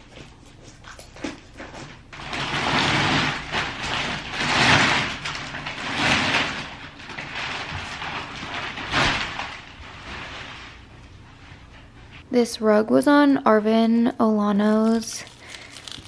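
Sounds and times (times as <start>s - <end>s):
plastic wrapping crinkling: 2.1s - 11.9s, 14.5s - 16.0s.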